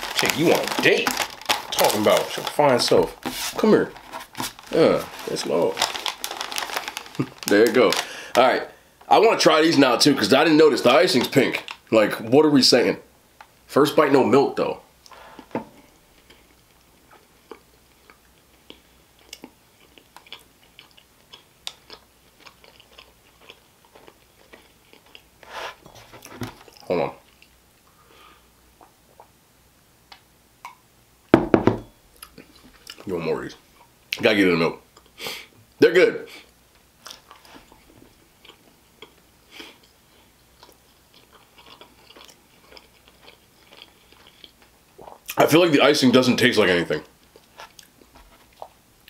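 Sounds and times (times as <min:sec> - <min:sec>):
cookie chewing: 0:16.2 - 0:25.4, 0:38.4 - 0:45.4.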